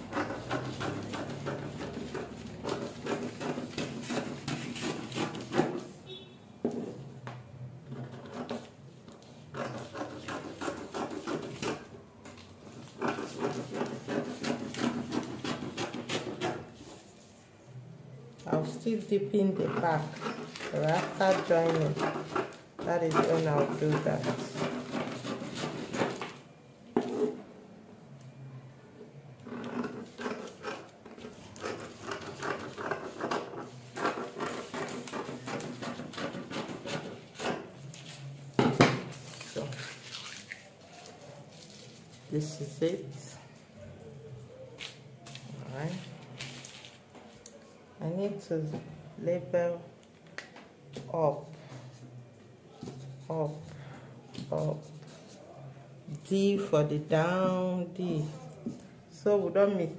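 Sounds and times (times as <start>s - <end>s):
paper rustling: 39.1s - 42.4s, 44.7s - 47.4s.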